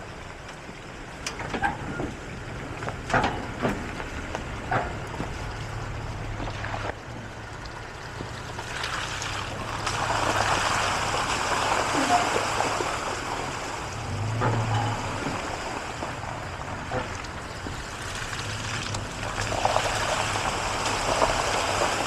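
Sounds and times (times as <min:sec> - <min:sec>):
truck engine running: 0:00.0 - 0:22.0
clanks over steel grate: 0:03.0 - 0:04.0, 0:04.7 - 0:05.2.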